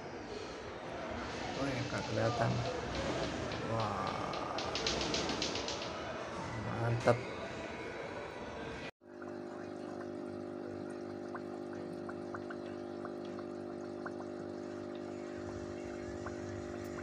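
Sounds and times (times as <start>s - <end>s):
drip-like ticks: 2.5s - 6.0s, 9.1s - 17.0s
water pump humming: 9.0s - 17.0s
water trickling: 9.0s - 17.0s.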